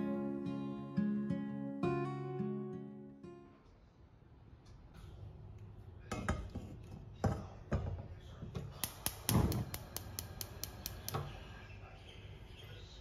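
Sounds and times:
gas burner catching: 8.7s - 11.4s
piezo igniter clicking: 8.7s - 11.5s.

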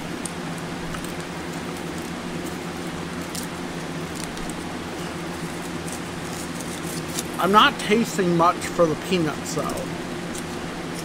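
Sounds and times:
electric fan humming: 0.0s - 11.0s
foil wrapper crinkling: 0.1s - 7.6s.

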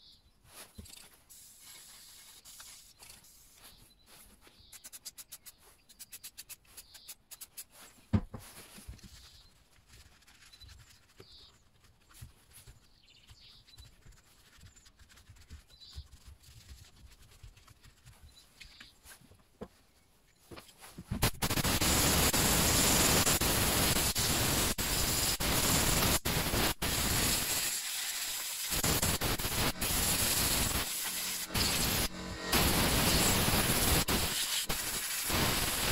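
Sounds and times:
compressed air hissing: 21.2s - 35.9s.

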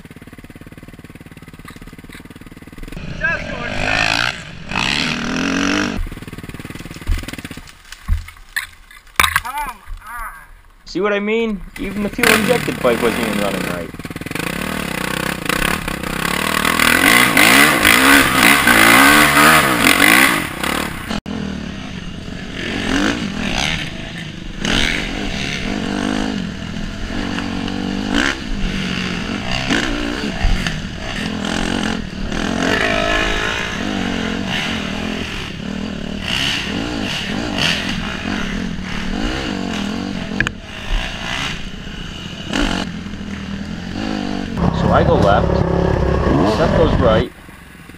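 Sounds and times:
dirt bike engine revving: 0.0s - 7.6s, 11.8s - 47.3s
knocks and rattles over bumps: 5.9s - 10.1s.

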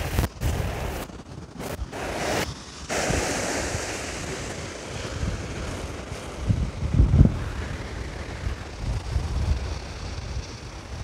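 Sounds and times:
wind buffeting microphone: 0.0s - 11.0s
surf breaking on shore: 1.7s - 9.0s.

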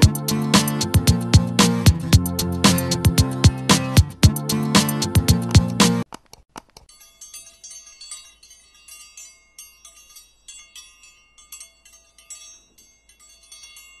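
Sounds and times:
high tinkling chimes: 6.9s - 14.0s.

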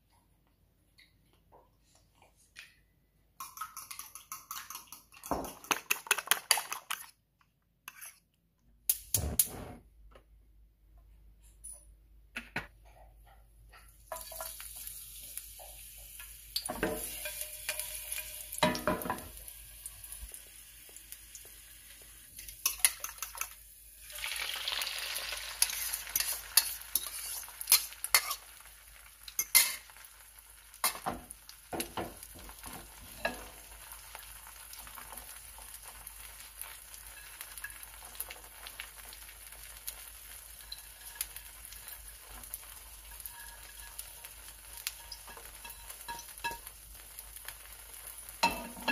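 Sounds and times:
metal utensil scraping a pan: 7.9s - 8.2s, 25.4s - 28.6s, 29.4s - 30.0s, 40.7s - 46.7s
egg sizzling in oil: 14.1s - 48.9s.

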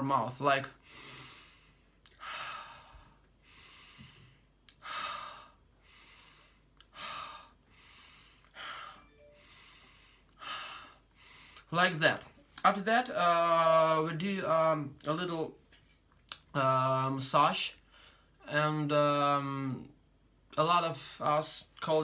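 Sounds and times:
man breathing deeply: 0.8s - 11.7s.

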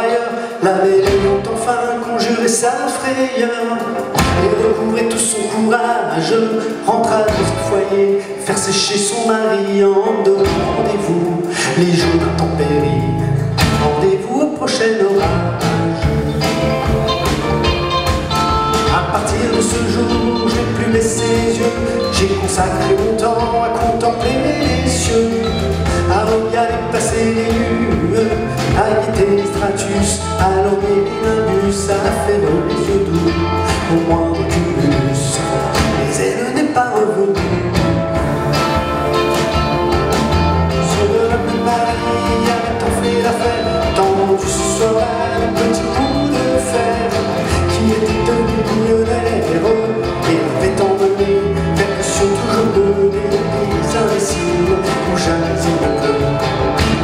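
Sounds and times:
electric guitars: 0.0s - 14.2s, 14.8s - 57.0s
drum kit playing: 0.0s - 57.0s.

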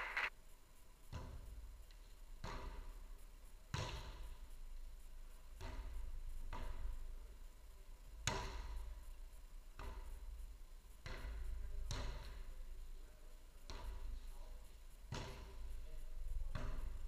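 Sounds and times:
ball struck with sharp thuds: 1.1s - 1.6s, 2.4s - 3.0s, 3.7s - 4.3s, 5.6s - 7.0s, 8.2s - 9.0s, 9.8s - 10.4s, 11.0s - 12.5s, 15.1s - 15.7s, 16.4s - 17.0s.

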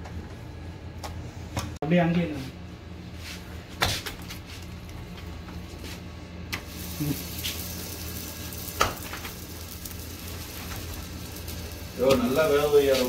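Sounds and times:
steady low hum: 0.0s - 13.0s
dough sizzling on griddle: 6.6s - 13.0s.

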